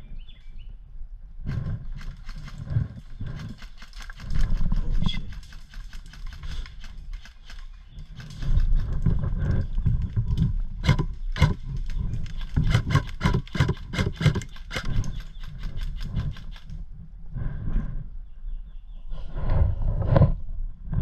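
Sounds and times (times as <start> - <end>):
rumble of camera moving: 0.0 - 21.0
footsteps and gear knocking: 8.1 - 16.7.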